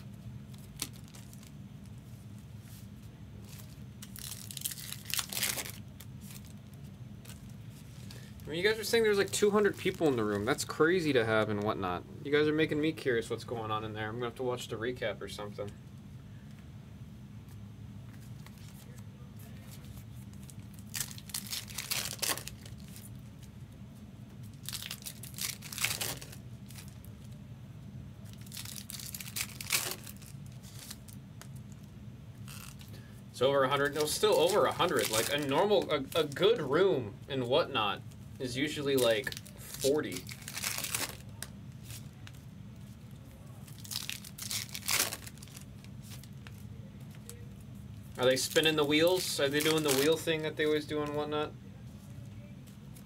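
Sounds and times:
card pack wrappers crinkling: 0.5 - 1.5, 3.4 - 10.6, 18.4 - 23.2, 24.5 - 27.4, 28.2 - 31.9, 33.7 - 36.7, 38.5 - 47.5, 48.1 - 51.2.

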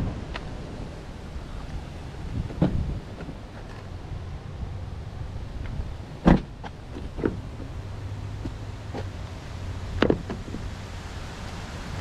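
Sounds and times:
car door shutting with thump: 2.5 - 3.4, 6.2 - 7.4, 10.0 - 10.6.

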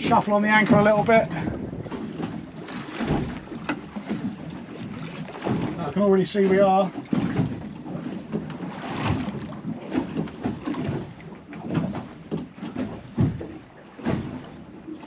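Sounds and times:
wind gusting across microphone: 0.0 - 8.1
water slapping against boat hull: 0.0 - 15.0.

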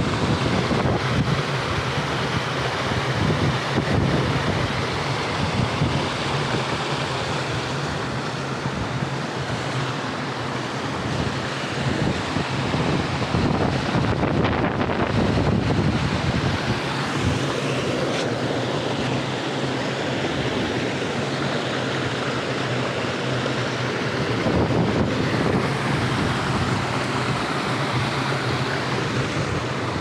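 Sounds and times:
wind buffeting microphone: 0.0 - 6.9, 11.0 - 19.2, 23.9 - 30.0
stream water rushing: 0.0 - 30.0.

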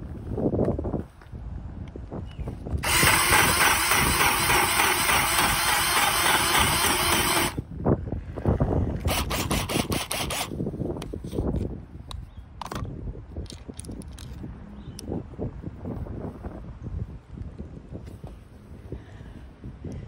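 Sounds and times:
drill hole saw cutting wood: 2.8 - 7.6, 9.1 - 10.5.

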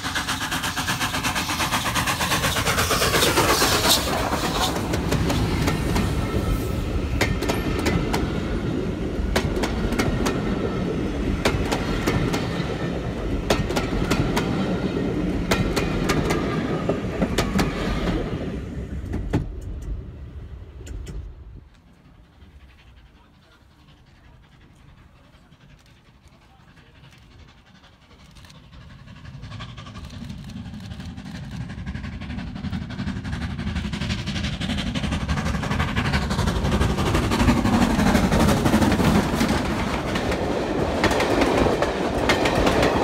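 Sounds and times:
steam locomotive exhaust beats: 0.0 - 43.0
train coaches rumbling past: 0.0 - 43.0
wheels clicking over rail joints: 24.6 - 43.0.

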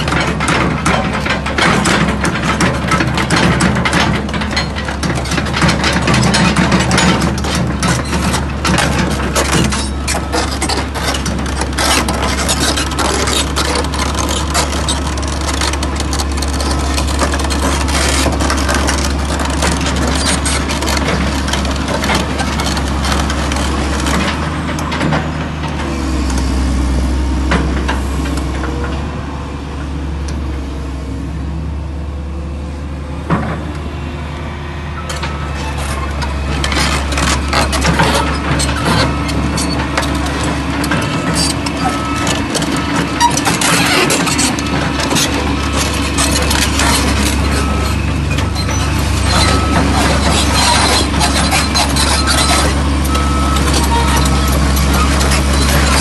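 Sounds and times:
diesel engine running: 0.0 - 56.0
steel track chains clanking: 35.0 - 56.0.

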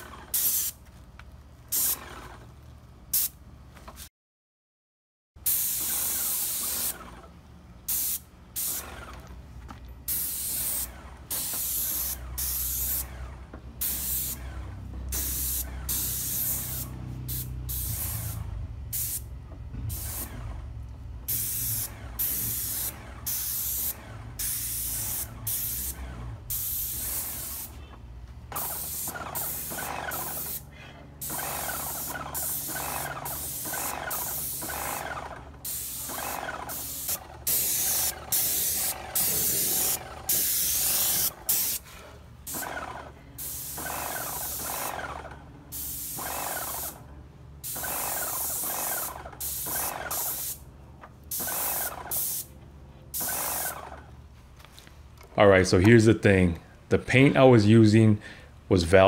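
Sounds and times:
paint sprayer hissing in bursts: 0.0 - 0.8, 1.7 - 2.2, 3.1 - 3.4, 5.4 - 7.2, 7.8 - 9.2, 10.1 - 13.2, 13.8 - 20.5, 21.2 - 27.9, 28.5 - 50.7, 51.3 - 54.0.

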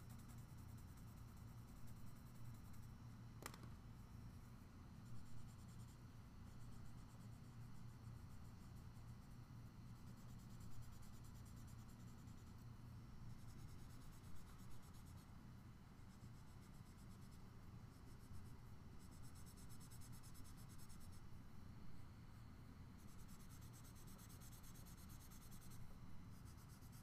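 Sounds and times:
low steady hum: 0.0 - 27.0
pencil shading on paper: 23.0 - 27.0.

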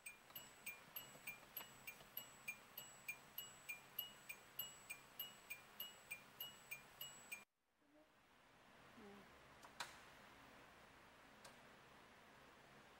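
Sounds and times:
car dashboard tick-tock signal: 0.0 - 7.4.

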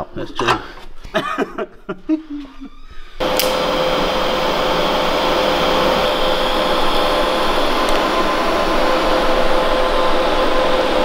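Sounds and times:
fan whirring and humming: 3.2 - 11.0.

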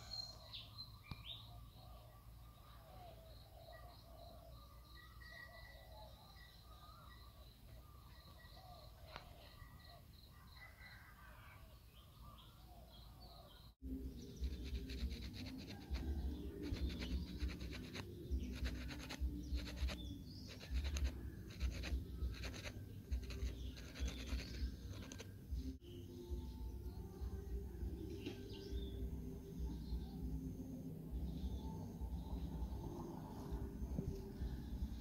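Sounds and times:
birds chirping faintly: 0.0 - 35.0
sandpaper rubbing bamboo rod: 14.4 - 25.3.

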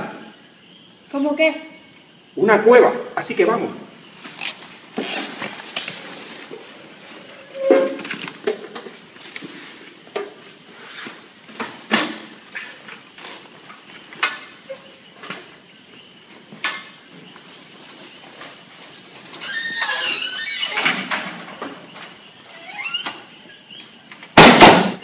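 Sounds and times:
objects knocking and clattering: 4.9 - 10.5.

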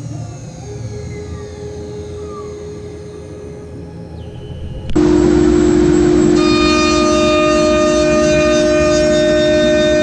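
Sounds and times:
router whining at high speed: 4.6 - 10.0.

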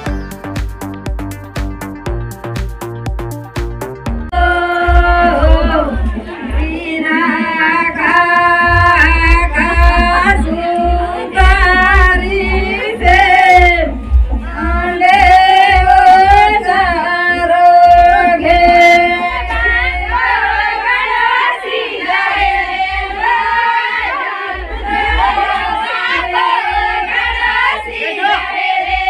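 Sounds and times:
woman singing into microphone: 4.3 - 21.4.

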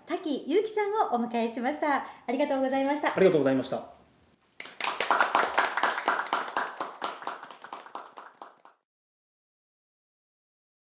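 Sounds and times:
hand clapping: 4.6 - 8.8.

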